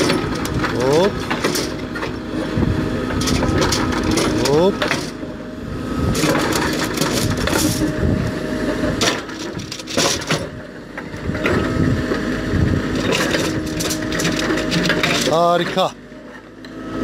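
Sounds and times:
steel rebar clanking on gravel: 0:00.0 - 0:02.2, 0:03.2 - 0:05.2, 0:06.2 - 0:08.0, 0:13.0 - 0:15.9
backhoe engine and hydraulics: 0:00.0 - 0:17.0.

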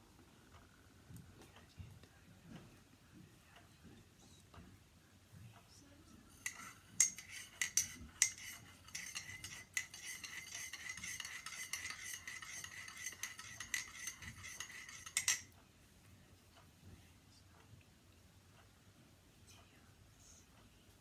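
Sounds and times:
teaspoon clinking in mug: 0:06.4 - 0:15.5.

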